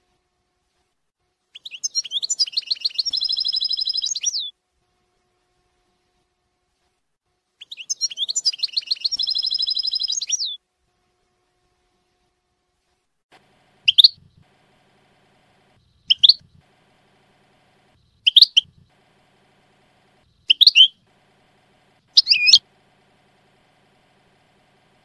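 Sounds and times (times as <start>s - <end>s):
finch chirping: 1.6s - 4.5s, 7.6s - 10.6s, 13.9s - 14.2s, 16.0s - 16.6s, 18.2s - 18.9s, 20.4s - 21.0s, 22.1s - 22.6s.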